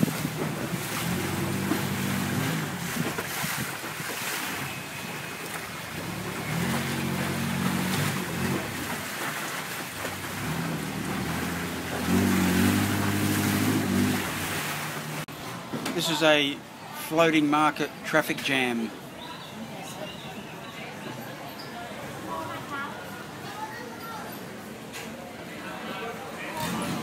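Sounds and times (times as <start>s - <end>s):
wind on microphone: 0.0s - 9.0s
motorboat engine droning: 0.0s - 15.4s
water rushing: 0.0s - 15.4s.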